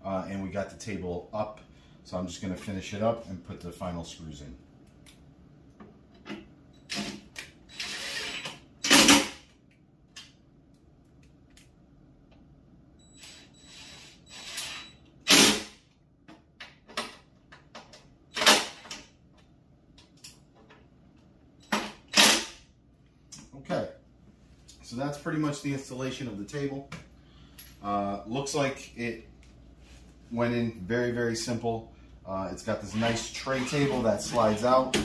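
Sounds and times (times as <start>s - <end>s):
cordless drill driving screws: 6.9s - 9.2s, 13.2s - 15.6s.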